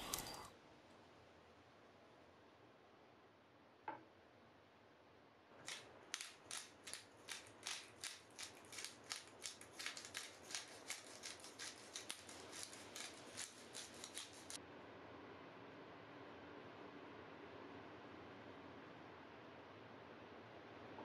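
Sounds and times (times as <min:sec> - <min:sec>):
pepper mill grinding: 0:05.6 - 0:14.6.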